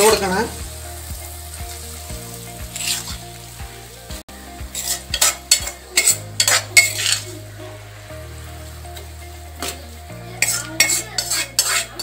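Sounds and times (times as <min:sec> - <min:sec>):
metal spoon scraping steel pan: 0:02.7 - 0:03.2, 0:04.7 - 0:07.4, 0:10.4 - 0:12.0.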